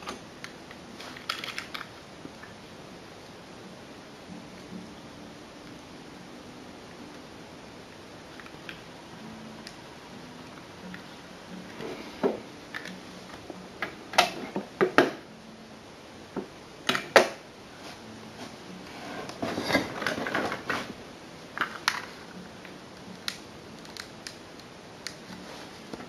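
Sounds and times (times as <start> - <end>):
small hard items clattering: 1.0 - 1.9
rustling: 25.2 - 26.0.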